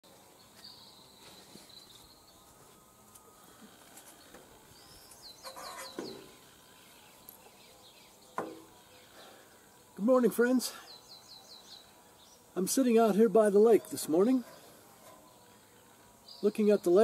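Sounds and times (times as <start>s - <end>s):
birds chirping: 0.1s - 17.0s
rustle and thump on metal bench: 5.4s - 6.4s, 8.4s - 8.8s.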